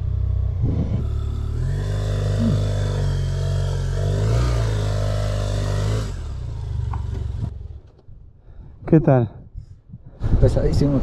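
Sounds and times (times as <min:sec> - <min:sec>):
motorcycle engine revving: 0:00.0 - 0:08.0.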